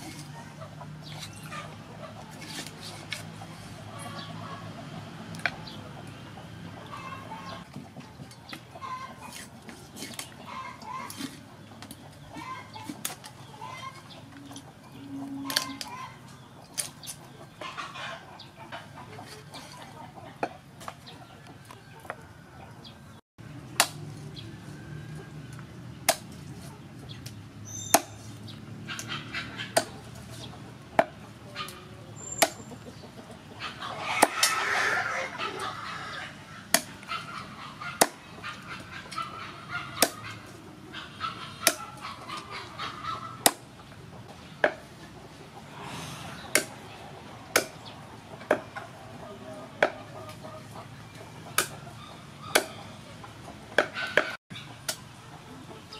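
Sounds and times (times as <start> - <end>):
birds calling: 0.0 - 23.2, 24.1 - 55.9
cleaver chopping on wooden board: 27.8 - 28.2, 36.7 - 37.0, 38.0 - 38.2, 46.5 - 46.7, 47.6 - 47.8, 52.5 - 52.8.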